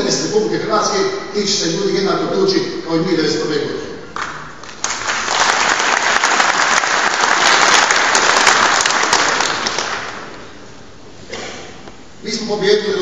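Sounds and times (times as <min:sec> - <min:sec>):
large audience applauding: 0:04.2 - 0:10.4.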